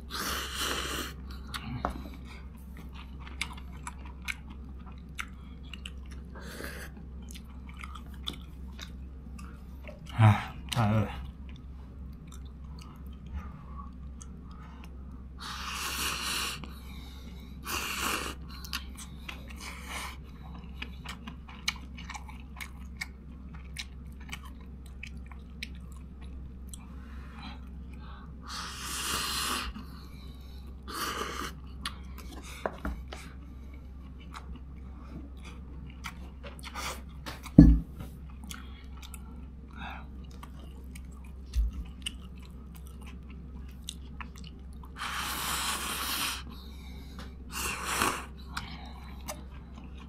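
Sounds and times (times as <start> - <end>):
noisy eating bursts: 0.0 - 37.3, 38.2 - 50.0
person chewing: 0.1 - 16.8, 17.7 - 27.0, 30.6 - 46.6, 47.2 - 50.0.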